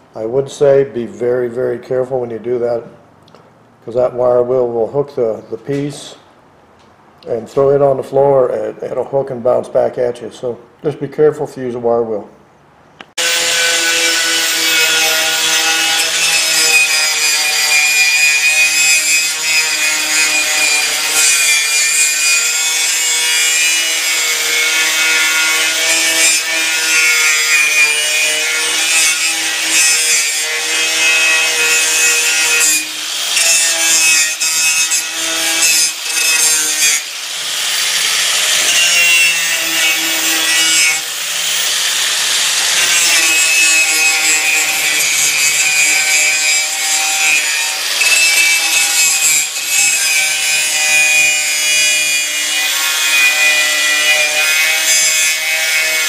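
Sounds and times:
wire wheel scratching metal: 0:13.3 - 0:56.0.

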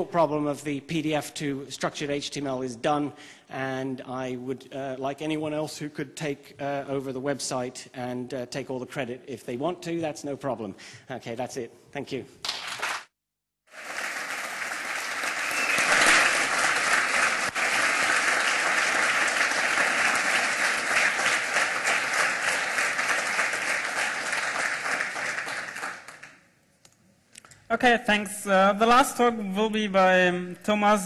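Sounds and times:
audience applauding: 0:12.5 - 0:13.1, 0:13.7 - 0:26.4.

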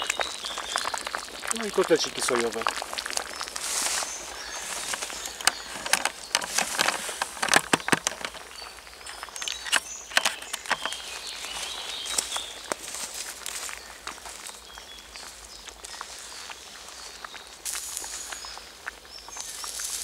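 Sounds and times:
footsteps crunching through dry leaves: 0:00.0 - 0:20.0
camera handling rustles: 0:04.7 - 0:08.5, 0:09.4 - 0:11.0.

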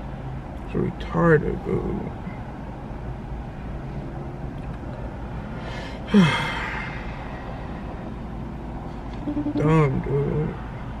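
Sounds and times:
man sighing: 0:06.1 - 0:07.0.

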